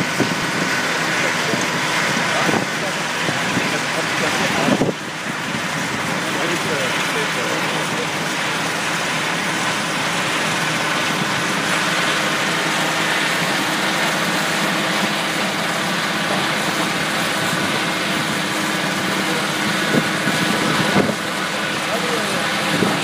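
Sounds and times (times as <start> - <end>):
crusher engine: 0.0 - 23.0.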